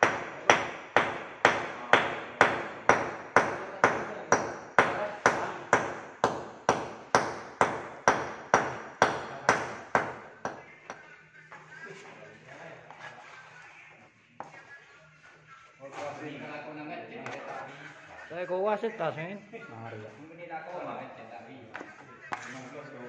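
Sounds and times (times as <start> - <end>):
hammer striking ceiling: 0.0 - 11.1.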